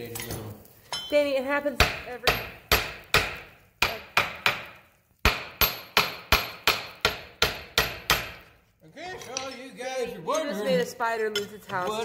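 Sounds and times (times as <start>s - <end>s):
hammer clanging on metal hub: 1.8s - 8.5s, 9.1s - 9.8s.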